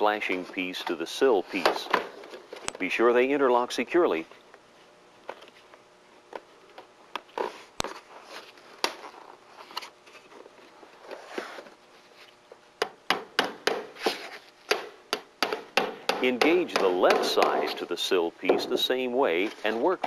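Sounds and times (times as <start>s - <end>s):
hammer strikes: 12.8s - 14.0s, 14.7s - 18.8s.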